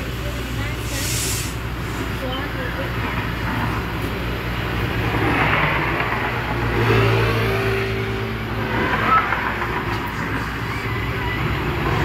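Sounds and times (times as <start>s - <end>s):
tyre and road noise: 0.0s - 12.0s
vehicle engine passing: 2.7s - 12.0s.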